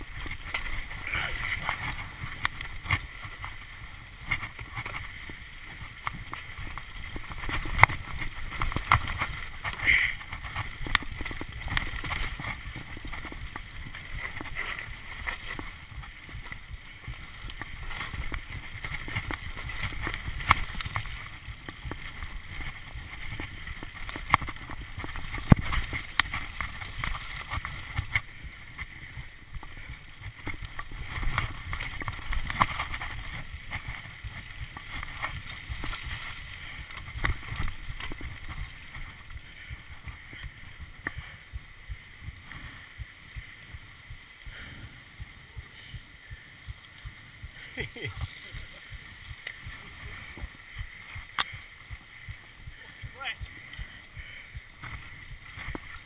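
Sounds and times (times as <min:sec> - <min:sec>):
bike rattling and knocking: 0:00.0 - 0:41.3
bike tyres rolling over dirt: 0:00.0 - 0:56.0.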